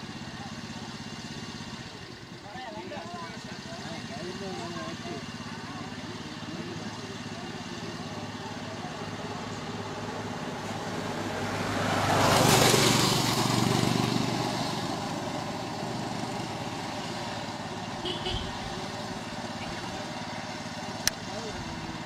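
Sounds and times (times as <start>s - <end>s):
low engine hum: 0.0s - 22.0s
motorcycle passing: 0.0s - 22.0s.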